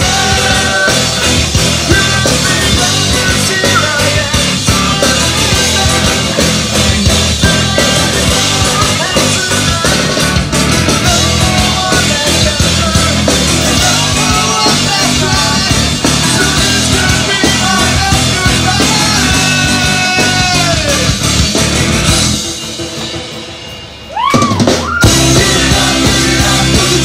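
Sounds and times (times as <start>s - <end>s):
person singing: 0.0s - 21.2s, 25.0s - 27.0s
band playing live: 0.0s - 27.0s.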